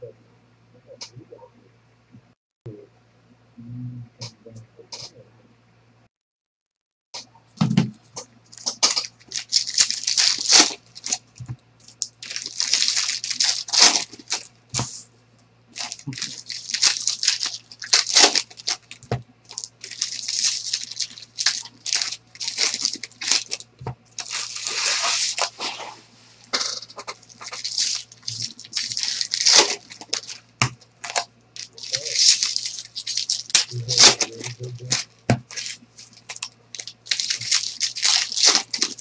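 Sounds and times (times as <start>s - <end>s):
foil wrappers crinkling: 8.4s - 15.0s, 15.8s - 25.8s, 26.9s - 39.0s.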